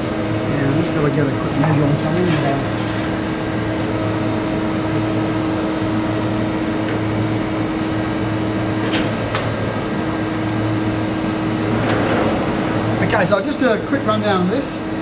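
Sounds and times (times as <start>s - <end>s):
machine humming: 0.0s - 15.0s.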